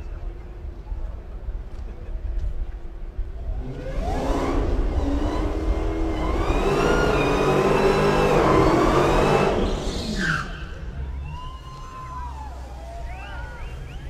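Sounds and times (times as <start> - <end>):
car engine revving: 3.4 - 11.0.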